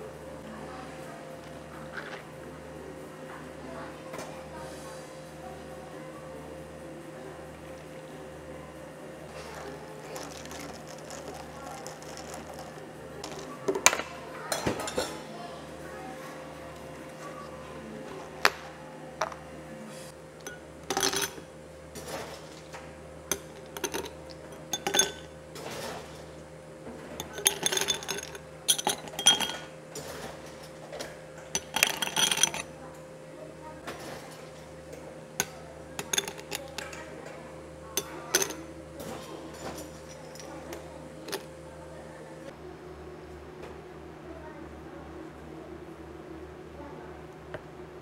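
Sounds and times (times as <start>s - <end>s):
steady low hum: 0.0s - 48.0s
ice cubes clinking into glasses: 10.1s - 13.5s, 20.4s - 21.5s, 23.3s - 25.3s, 27.2s - 29.7s, 31.5s - 32.7s, 35.4s - 37.0s, 38.0s - 38.7s, 39.6s - 41.5s.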